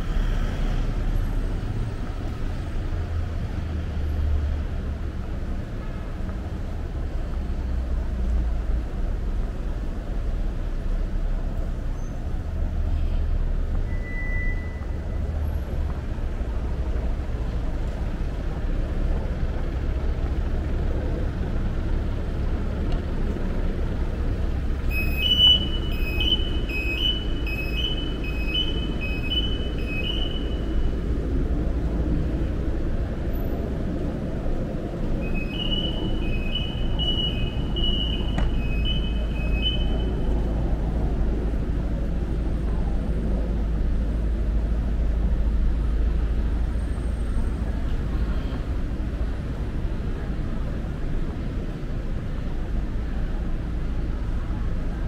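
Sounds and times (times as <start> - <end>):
street traffic rumble: 0.0 - 55.0
high electronic two-tone beep: 24.9 - 30.7, 35.2 - 40.1.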